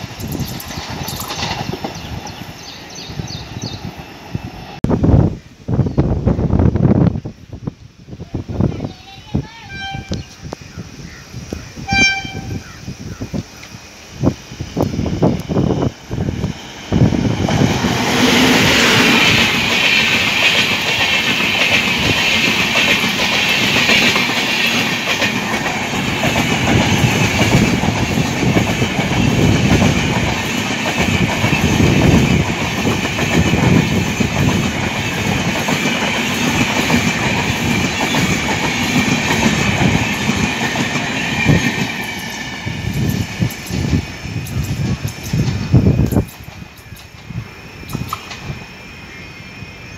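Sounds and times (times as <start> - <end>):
train wheels rushing on rail: 0.0 - 7.6, 8.2 - 49.9.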